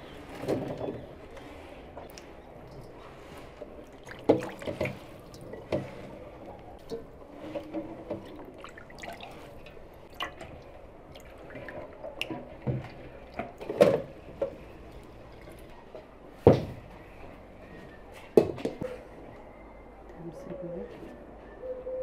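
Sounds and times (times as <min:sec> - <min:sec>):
water dripping from colander: 0:03.8 - 0:05.9, 0:08.1 - 0:13.8.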